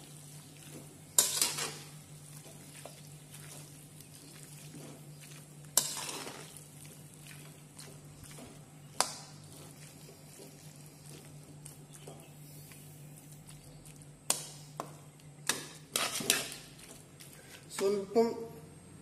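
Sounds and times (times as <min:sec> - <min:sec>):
metal spatula stirring in a wok: 0:00.0 - 0:11.9, 0:15.8 - 0:17.3
faint frying sizzle: 0:00.0 - 0:17.6.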